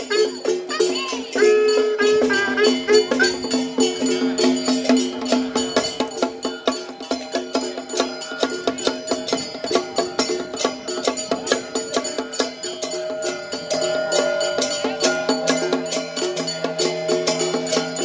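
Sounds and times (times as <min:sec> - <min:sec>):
wind instrument melody: 0:00.0 - 0:05.0
wood-block percussion strikes: 0:00.0 - 0:18.0.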